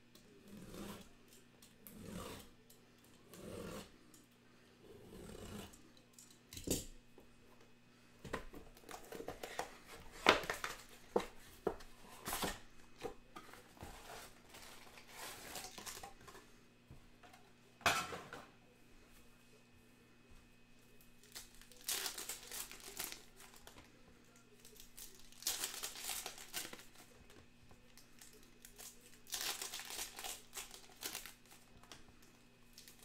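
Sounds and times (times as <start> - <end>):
foil packs rustling: 13.6 - 16.2, 21.2 - 23.8, 24.6 - 27.1, 28.2 - 31.9.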